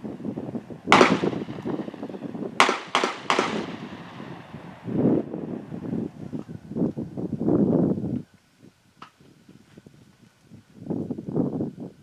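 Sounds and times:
rifle shot with ringing: 0.9 - 4.8.

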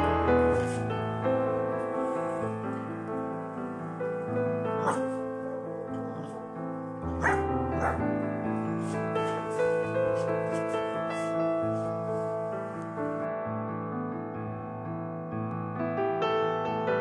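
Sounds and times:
soft piano music: 0.0 - 17.0
high puppy barks: 4.7 - 6.5, 7.1 - 8.2.

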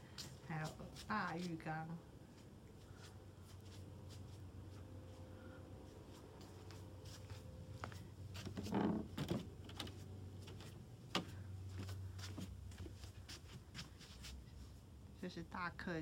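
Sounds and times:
knocks and rustles: 8.3 - 13.9.

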